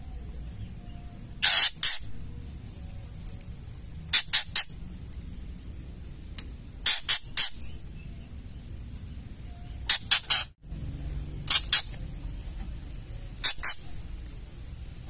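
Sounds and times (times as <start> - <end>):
bird harsh rattling call: 1.4 - 2.3, 4.1 - 4.8, 6.8 - 8.1, 9.7 - 10.6, 11.4 - 12.0, 13.4 - 14.1.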